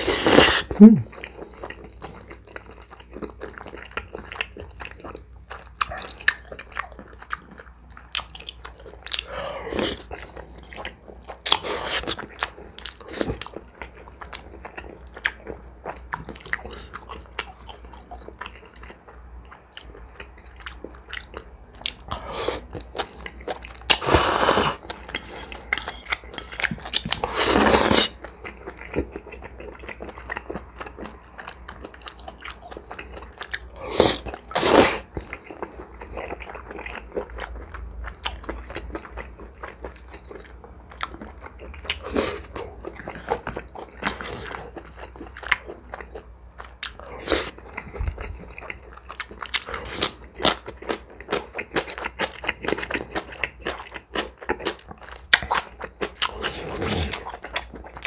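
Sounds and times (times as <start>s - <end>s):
chewing and wet mouth sounds: 0.0s - 58.0s
slurping noodles: 24.0s - 25.5s, 27.2s - 28.2s.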